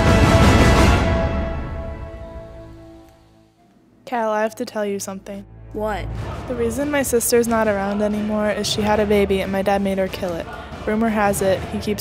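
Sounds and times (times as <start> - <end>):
background music with held tones: 5.0 - 12.0.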